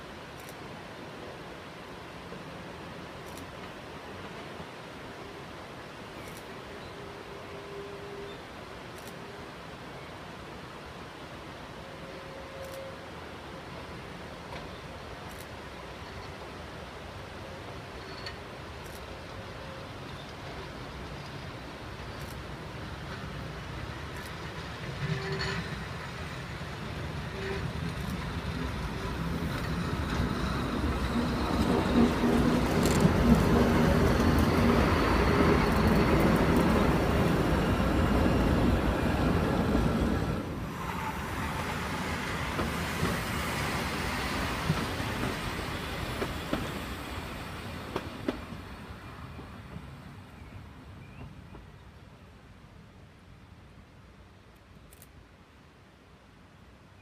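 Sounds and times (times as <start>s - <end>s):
train wheels on rails: 0.0s - 4.9s, 13.6s - 52.0s.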